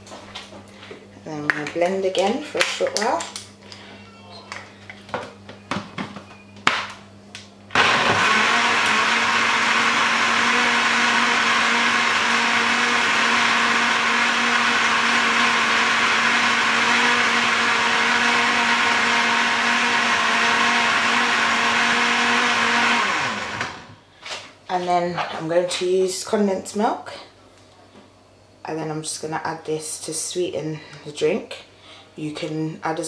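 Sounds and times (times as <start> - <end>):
blender running: 7.7 - 24.0.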